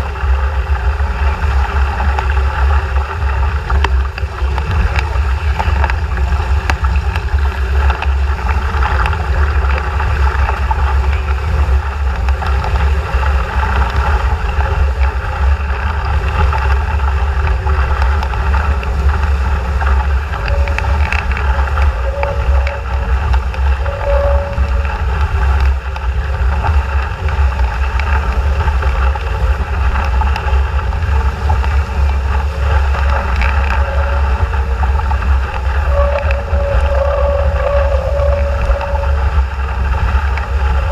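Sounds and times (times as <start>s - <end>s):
water rushing along hull: 0.0s - 40.9s
wind buffeting microphone: 0.0s - 40.9s.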